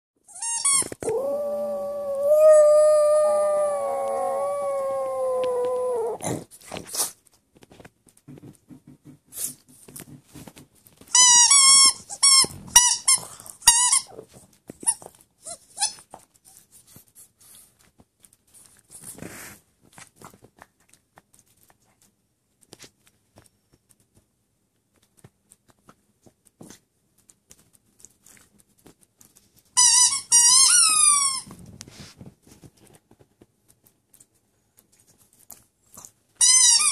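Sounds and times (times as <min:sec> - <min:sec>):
squeaky toy squeaks: 0:00.3 - 0:01.0, 0:11.1 - 0:14.2, 0:14.8 - 0:16.1, 0:29.8 - 0:31.5, 0:36.4 - 0:36.9.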